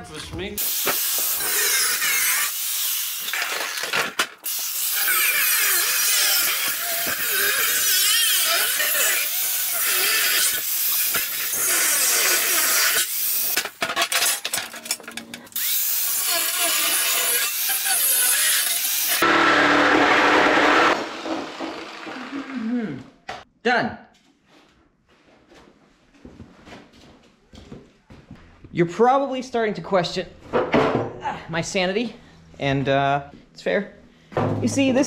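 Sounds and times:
angle grinder cutting steel: 0.6 - 22.8.

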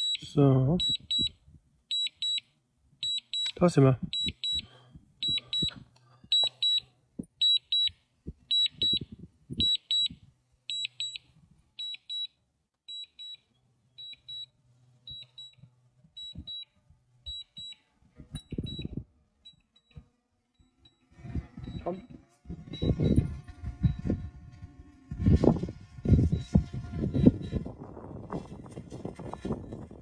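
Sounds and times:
high electronic beeps: 3.0 - 5.7, 21.6 - 24.2.

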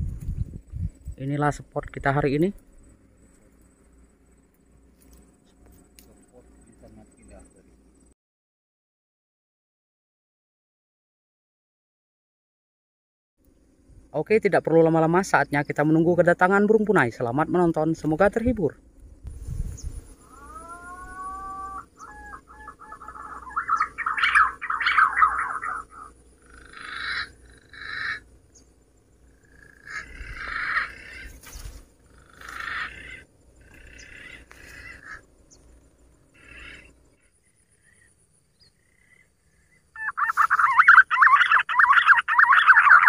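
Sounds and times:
pigeon whistling calls: 19.8 - 26.1, 40.0 - 43.0
fast-pulsing bird call: 19.8 - 28.7, 29.3 - 43.0.

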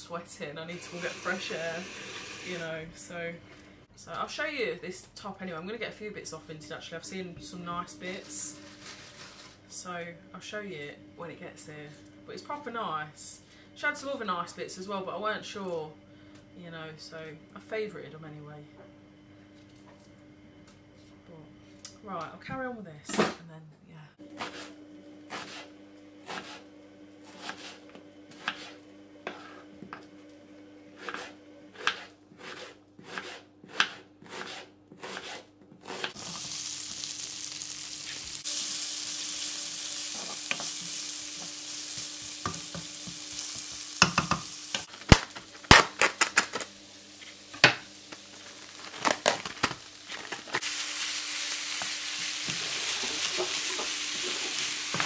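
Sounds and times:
onions sizzling in frying pan: 0.8 - 2.6, 36.2 - 55.0
knife chopping on wooden board: 27.3 - 28.7, 31.0 - 36.2
spoon knocking against pan: 43.6 - 44.5.

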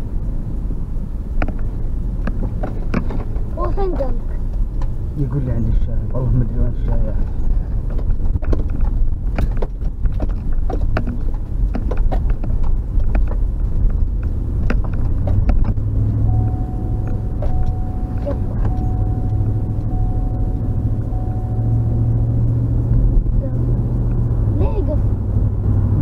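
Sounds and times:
car engine and road rumble: 0.0 - 26.0
knocks and rattles: 7.1 - 16.0
faint steady whine: 16.2 - 23.4.

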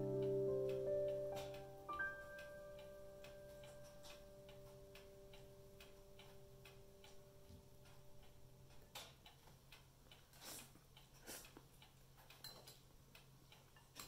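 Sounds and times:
soft background music: 0.0 - 9.0
faint steady ticking: 0.0 - 14.0.

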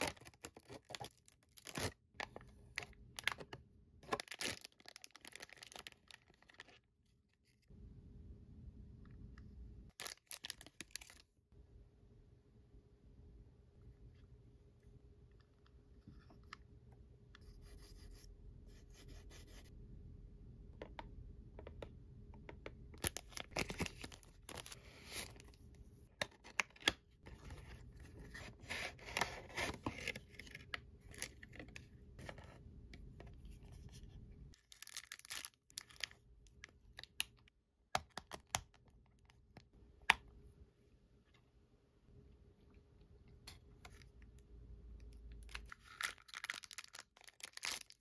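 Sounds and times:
cardboard and plastic packaging tearing: 45.8 - 48.0.

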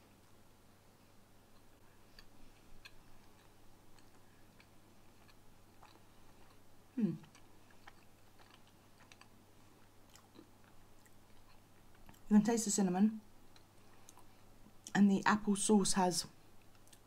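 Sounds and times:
chewing soft pastry: 1.0 - 12.3, 13.4 - 15.0, 16.5 - 17.0.

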